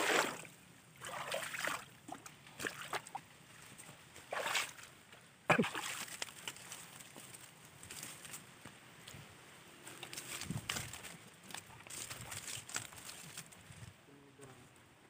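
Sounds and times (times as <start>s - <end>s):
sharp loud splash: 0.0s - 1.8s
sloshing in shallow water: 0.0s - 7.5s.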